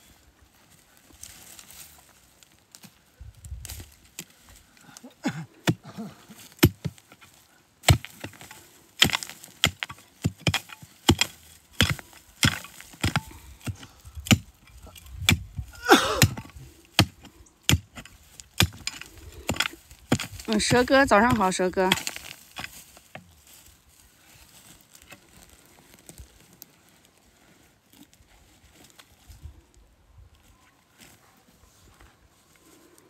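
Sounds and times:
mattock chopping into soil: 5.6 - 23.4.

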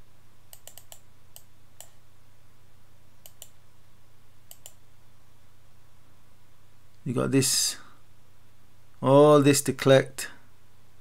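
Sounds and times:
faint low hum: 0.0 - 11.0
computer mouse clicking: 0.5 - 2.0, 3.2 - 3.6, 4.5 - 4.8.

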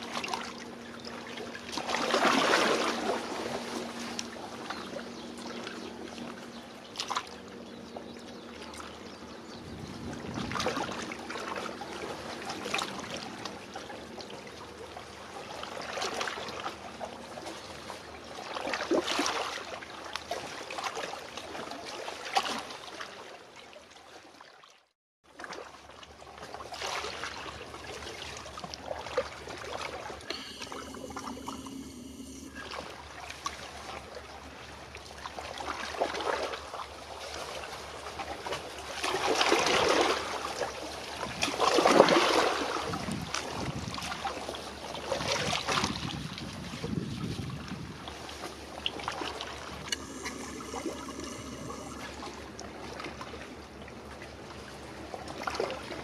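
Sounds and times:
waves lapping against concrete: 0.0 - 56.0.

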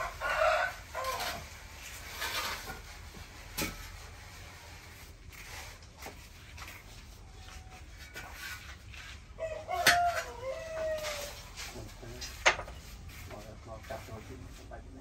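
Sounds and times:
rooster crowing: 0.0 - 1.5, 9.4 - 11.5.

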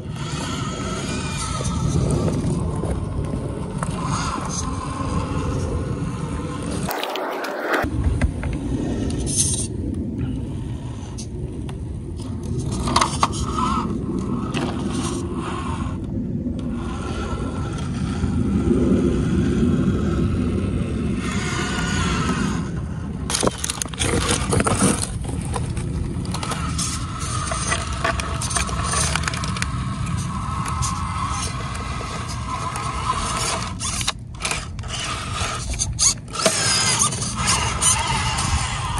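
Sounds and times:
electric drivetrain whine: 0.0 - 38.9
steady low rumble: 0.0 - 38.9
tyres scraping on stone: 6.7 - 7.9, 23.3 - 38.9.

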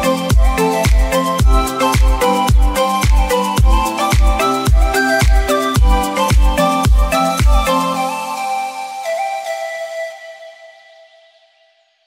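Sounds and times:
steady kick drum: 0.0 - 7.7
dance music: 0.0 - 10.5.

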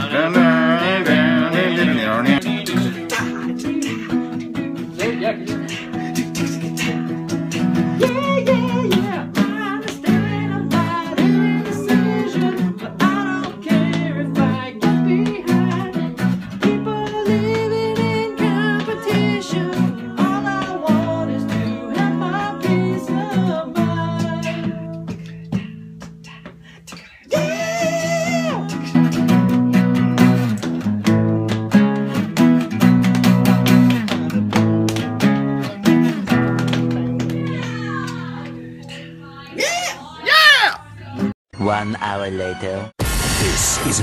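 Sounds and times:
person singing: 0.0 - 25.2, 27.2 - 29.5
acoustic guitar strumming: 0.0 - 40.3.

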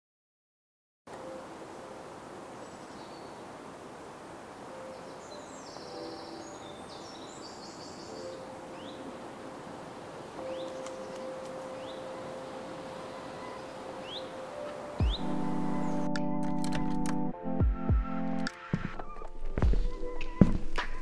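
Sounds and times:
steady airy hiss: 1.2 - 15.0.

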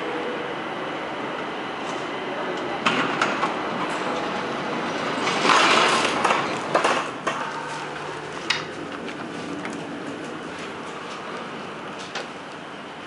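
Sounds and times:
elevator doors sliding open: 2.7 - 12.5
footstep clicks and knocks: 6.0 - 12.6.

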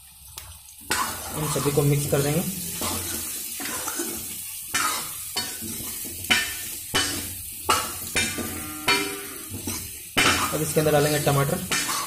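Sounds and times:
vegetables sizzling in oil: 0.0 - 12.0
ladle scraping and knocking a pan: 2.8 - 10.7, 11.6 - 12.0.

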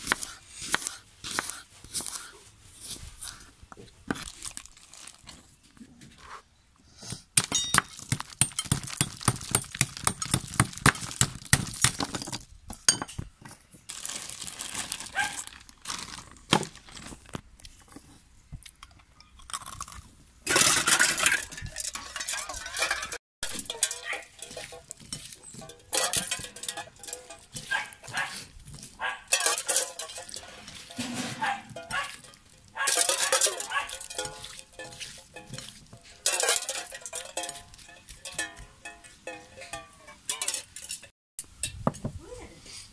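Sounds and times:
ice clinking against steel cup: 20.5 - 28.3, 29.2 - 41.8.

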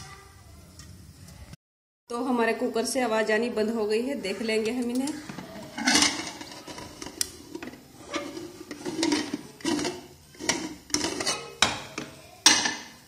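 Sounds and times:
metal lid scraping and clanking: 5.0 - 12.9.

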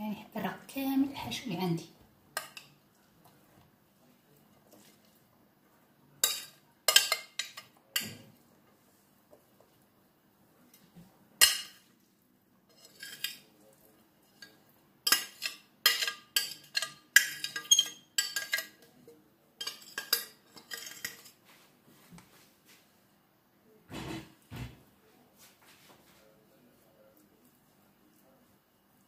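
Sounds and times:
metal spoon scraping glass dish: 12.7 - 13.4, 15.1 - 18.8, 19.6 - 21.3.

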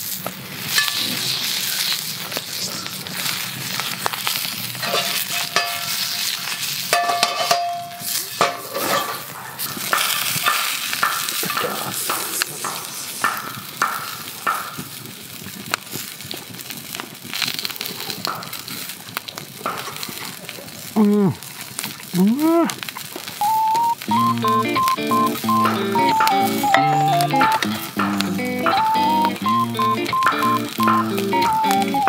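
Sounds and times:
sausages sizzling in a skillet: 0.0 - 32.0
chopsticks clinking on pan: 4.8 - 9.3.

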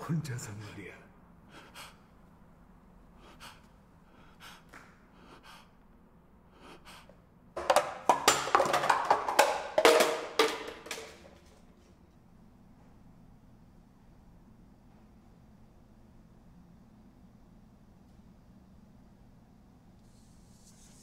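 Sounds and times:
man gasping breaths: 1.4 - 2.2, 3.1 - 5.8, 6.4 - 7.2
rapid clattering percussive hits: 7.6 - 11.5.

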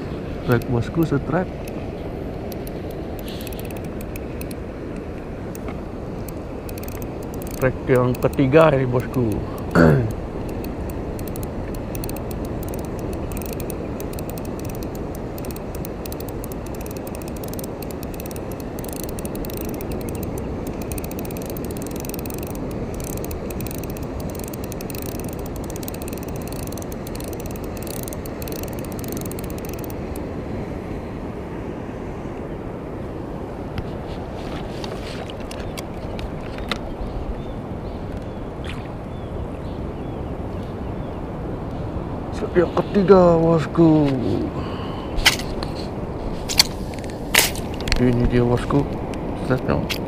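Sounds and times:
fishing reel gears ticking: 2.5 - 4.6, 5.5 - 30.2.

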